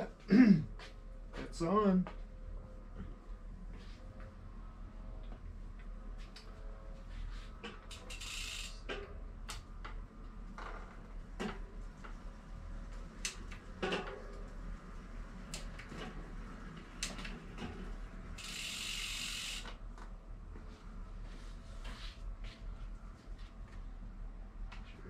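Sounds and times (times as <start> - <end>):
metal clicks and ratcheting: 7.9 - 9.6.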